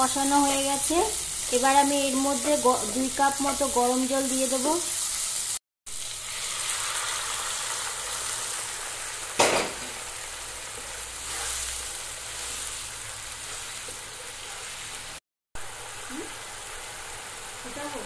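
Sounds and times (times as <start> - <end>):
gravy sizzling and bubbling in a pan: 0.0 - 18.0
sharp knock: 9.4 - 9.9
spatula stirring: 10.8 - 15.0.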